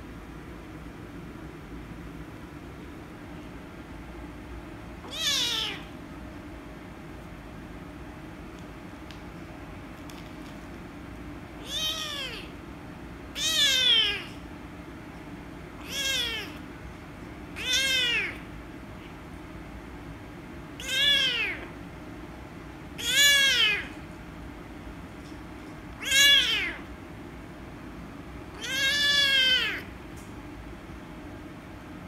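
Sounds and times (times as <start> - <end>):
steady background hum: 0.0 - 32.0
kitten meowing: 5.0 - 5.9, 11.6 - 12.5, 13.4 - 14.4, 15.8 - 16.6, 17.6 - 18.5, 20.8 - 21.7, 23.0 - 23.9, 26.0 - 26.8, 28.5 - 29.9.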